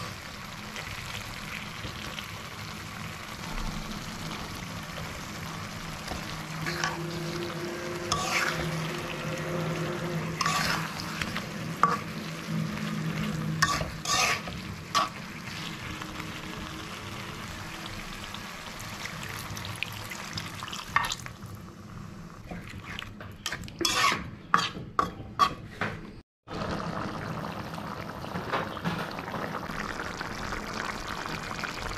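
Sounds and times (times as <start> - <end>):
curry sizzling in a metal pan: 0.0 - 25.7
metal spatula scraping a pan: 6.6 - 15.8, 22.5 - 25.8.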